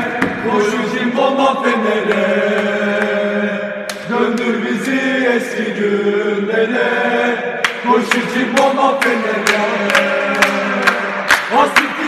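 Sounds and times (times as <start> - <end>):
men chanting in unison: 0.0 - 12.0
hand claps: 3.9 - 4.6, 7.6 - 12.0.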